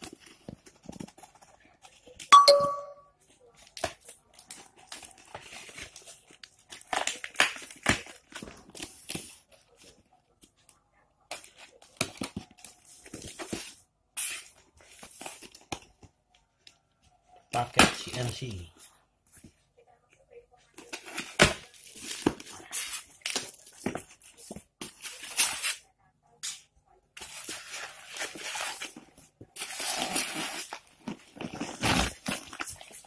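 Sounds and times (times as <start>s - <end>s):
packing tape ripping off box: 29.6s - 33.0s.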